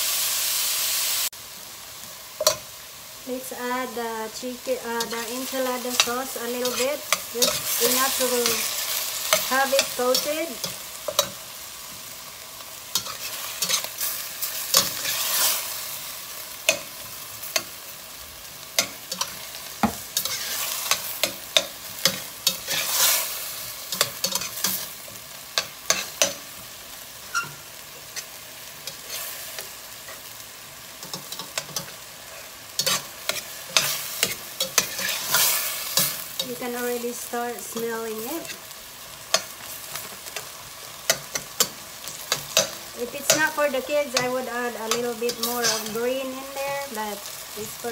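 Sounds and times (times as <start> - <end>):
low sizzle: 0.0 - 47.9
metal spatula scraping pot: 27.2 - 28.3, 32.8 - 36.2.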